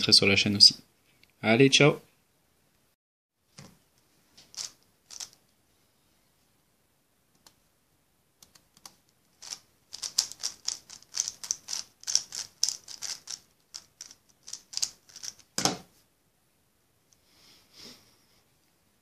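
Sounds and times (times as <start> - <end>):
plastic cube clicking: 4.5 - 5.4, 8.4 - 15.6.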